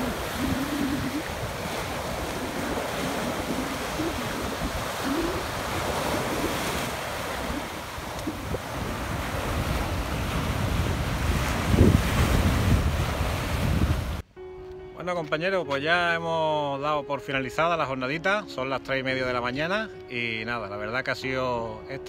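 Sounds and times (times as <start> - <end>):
surf waves breaking: 0.0 - 14.2
wind buffeting microphone: 0.0 - 14.2.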